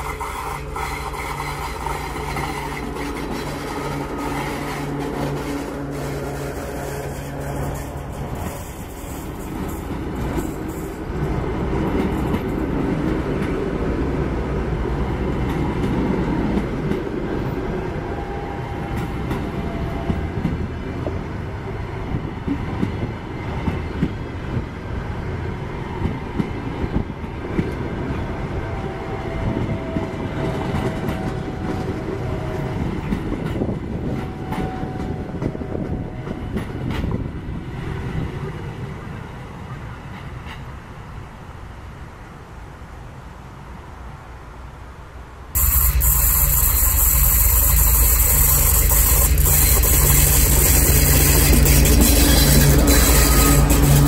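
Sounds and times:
wheels clicking over rail joints: 0.0s - 13.6s, 45.6s - 54.0s
train wheels rumbling on rails: 0.0s - 41.5s, 45.6s - 54.0s
faint wheel squeals: 45.6s - 54.0s.

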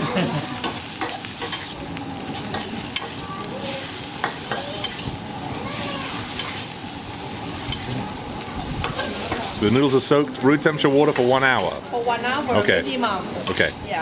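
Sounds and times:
noodles sizzling in a wok: 0.0s - 14.0s
metal spatula scraping a wok: 0.7s - 6.6s, 8.8s - 10.0s.

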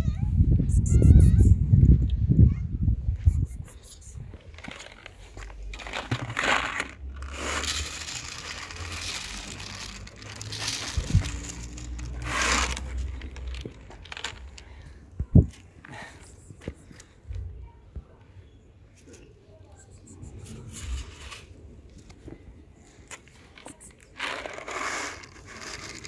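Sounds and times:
rustling and crinkling: 4.3s - 17.2s, 20.3s - 26.0s.

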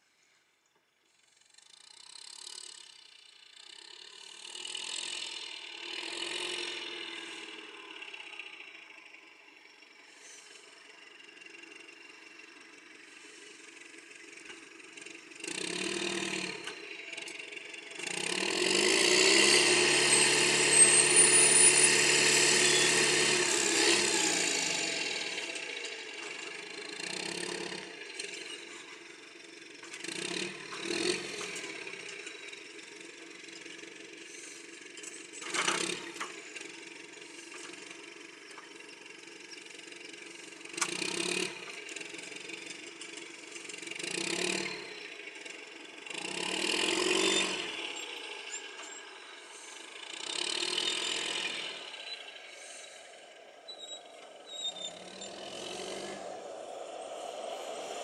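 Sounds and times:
hay machine engine revving: 4.5s - 8.6s, 13.1s - 33.2s, 40.1s - 58.0s.

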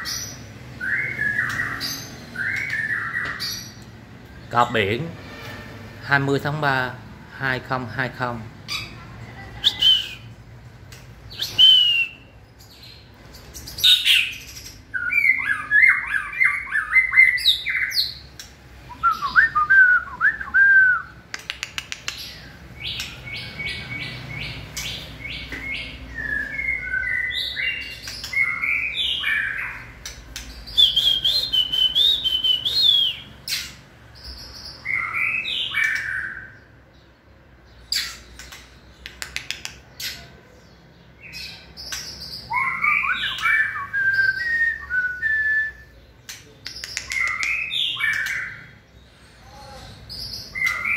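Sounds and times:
bird singing varied phrases: 0.0s - 5.4s, 6.0s - 10.5s, 11.2s - 50.9s
short clicking bird notes: 46.2s - 48.5s.

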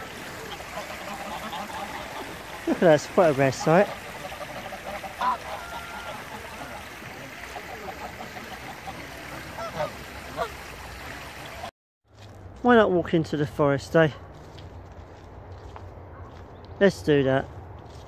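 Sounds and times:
geese honking: 0.0s - 11.7s.

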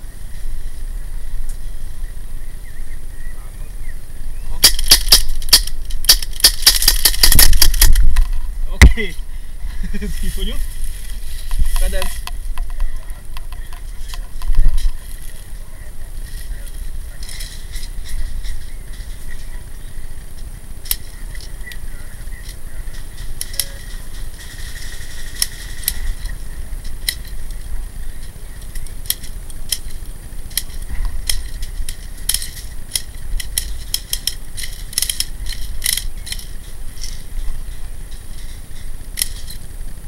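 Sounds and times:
steady low rumble: 0.0s - 40.0s
sharp mechanical clicks: 4.6s - 8.3s, 28.2s - 39.7s.

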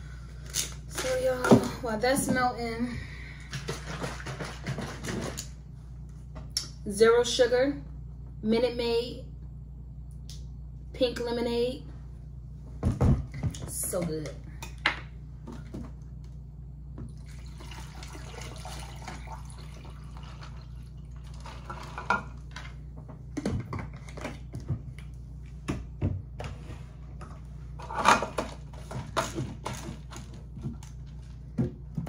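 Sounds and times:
lemonade pouring into a tumbler: 17.2s - 22.0s.

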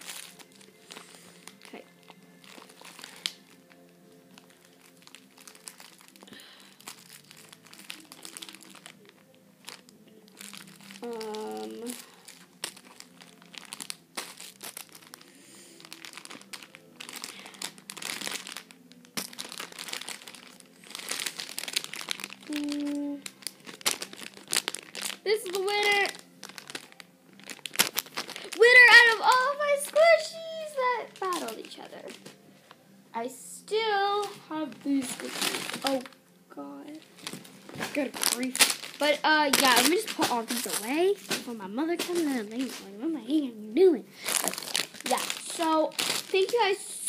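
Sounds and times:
toys rustling and crinkling: 0.0s - 32.8s, 33.7s - 47.0s.

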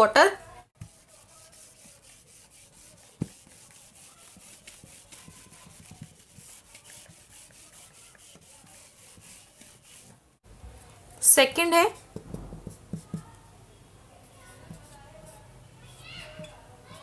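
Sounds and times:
pen scratching while writing: 0.8s - 10.1s, 12.4s - 13.3s.

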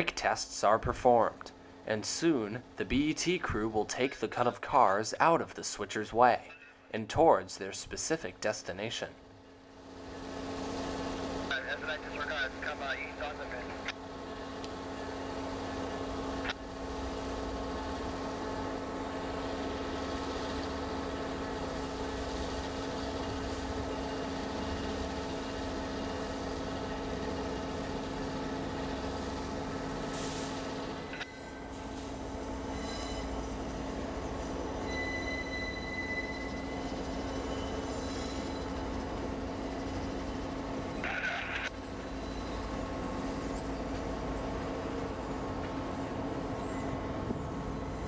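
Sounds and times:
diesel locomotive engine running: 0.0s - 48.0s
locomotive rolling by: 9.8s - 48.0s
thin wheel squeal: 32.7s - 33.6s, 34.8s - 38.9s, 40.9s - 42.9s.

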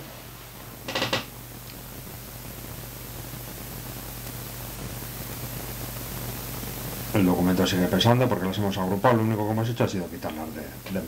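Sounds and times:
hiss with low hum: 0.0s - 11.0s.

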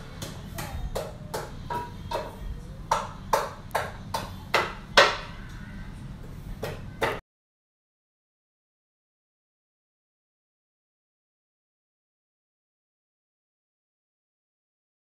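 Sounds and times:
low steady hum: 0.0s - 7.2s.

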